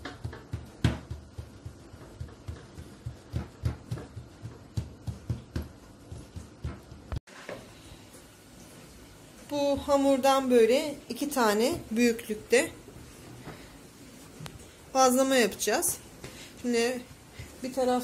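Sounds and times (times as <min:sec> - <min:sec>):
palms patting dough: 0:00.0 - 0:07.7.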